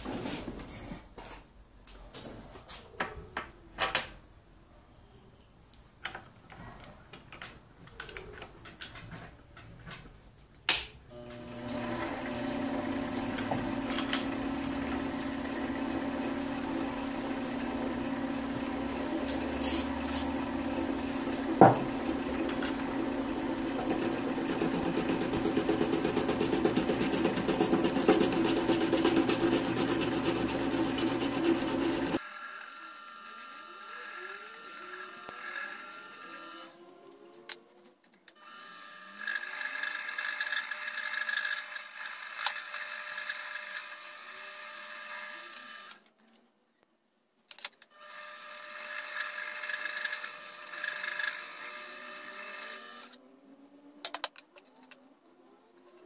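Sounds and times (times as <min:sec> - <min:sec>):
lathe motor hum: 0:11.1 - 0:32.2
cutting tool scraping metal rod: 0:22.3 - 0:32.2, 0:49.2 - 0:51.4.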